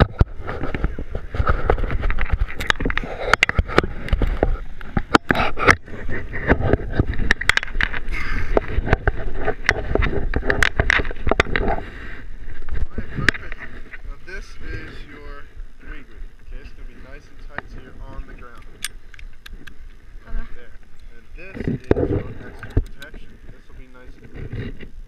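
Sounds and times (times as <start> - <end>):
camera handling rubbing and knocks: 0.0 - 11.8, 12.5 - 14.0, 20.8 - 25.0
low wind rumble: 0.0 - 25.0.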